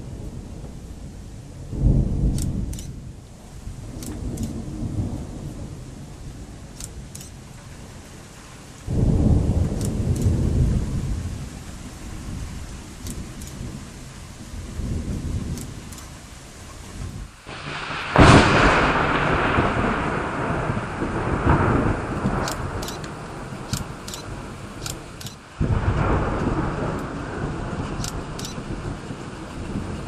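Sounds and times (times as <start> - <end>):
thunder rumbling: 0.0 - 30.0
faint high ticks: 2.3 - 3.0, 3.9 - 4.6, 6.8 - 7.4, 9.8 - 10.3, 13.0 - 13.6, 15.5 - 16.1, 22.3 - 25.4, 28.0 - 28.6.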